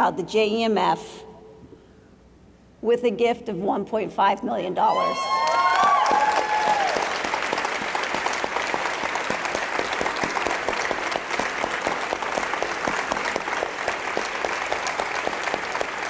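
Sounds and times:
crowd cheering: 4.9 - 16.0
audience applauding: 5.3 - 16.0.

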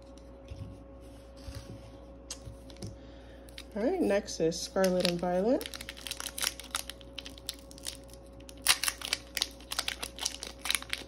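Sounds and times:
foil wrapper tearing and crinkling: 4.8 - 11.0.

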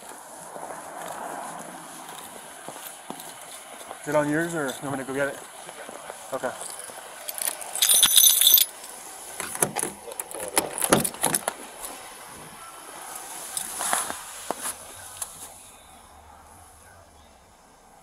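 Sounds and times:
metal jangling: 6.6 - 11.5
car door latch clicks and knocks: 9.4 - 11.6.

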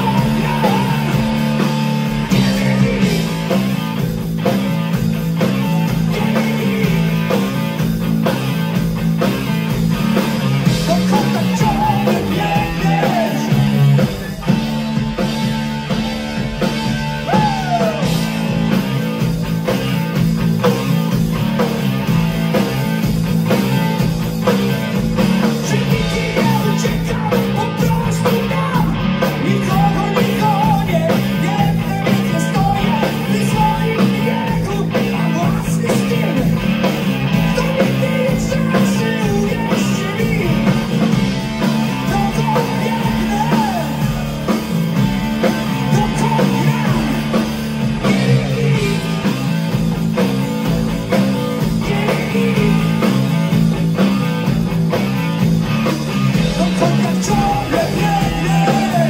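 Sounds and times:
person singing: 0.0 - 3.6, 5.8 - 7.4, 10.8 - 14.5, 17.2 - 18.4, 25.5 - 36.6, 37.3 - 44.6, 45.4 - 49.3, 51.6 - 53.3, 56.4 - 59.0
bass guitar: 0.0 - 59.0
drum kit: 0.0 - 59.0
electric guitar: 0.0 - 59.0.

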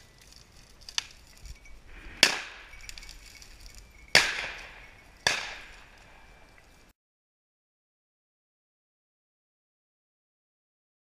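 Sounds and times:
shotgun shots with echo: 4.1 - 6.0.

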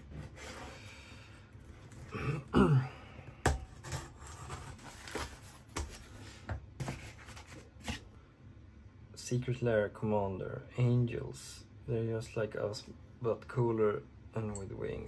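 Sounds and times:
cardboard rustling and scraping: 3.7 - 8.1.

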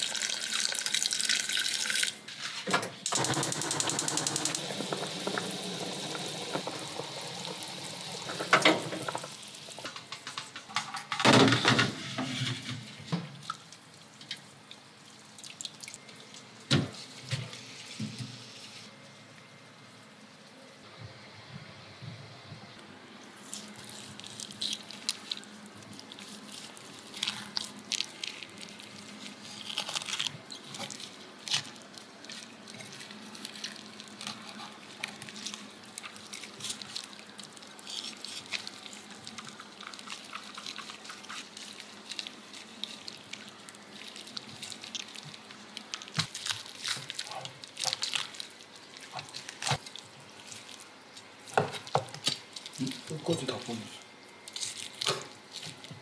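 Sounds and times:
wet meat sounds: 13.4 - 18.0, 23.2 - 56.0.

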